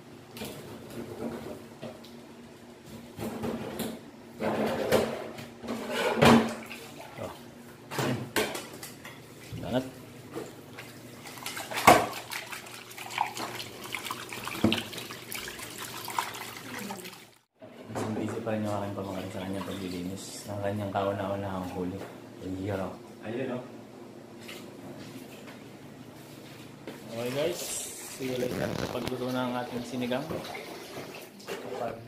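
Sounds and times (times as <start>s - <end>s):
kitchen tap running: 10.6s - 17.4s
pot and knife clattering on sink: 11.4s - 12.4s.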